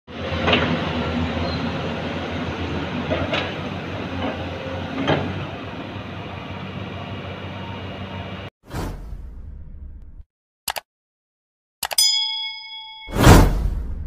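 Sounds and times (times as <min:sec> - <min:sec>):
forklift engine running: 0:00.1 - 0:08.5.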